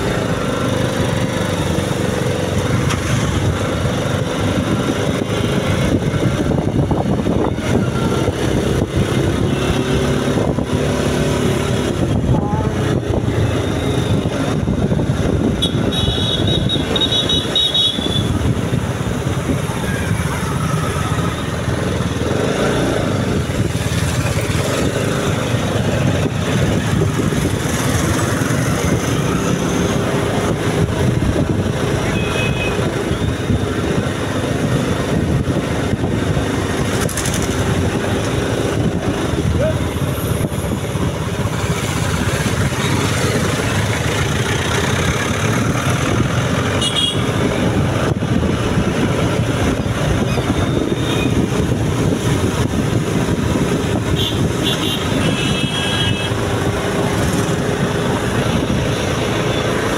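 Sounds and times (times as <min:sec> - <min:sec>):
wind rush on microphone: 0:00.0 - 0:17.2, 0:18.0 - 0:59.9
high horn tone: 0:46.8 - 0:47.3.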